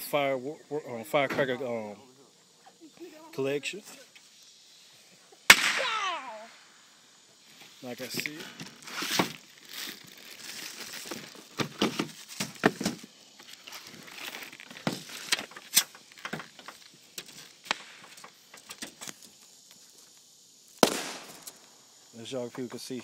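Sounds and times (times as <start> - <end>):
plastic wrapping crinkling: 8.6 - 17.4.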